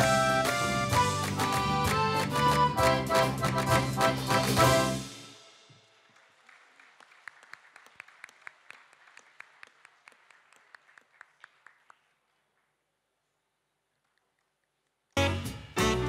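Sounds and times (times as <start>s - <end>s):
faint hand clapping: 0.0s - 4.9s, 6.1s - 12.7s.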